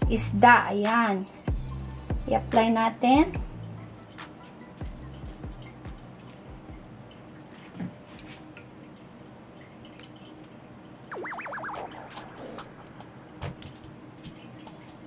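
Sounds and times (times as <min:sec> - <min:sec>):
warbling tone: 0:11.1 - 0:14.6.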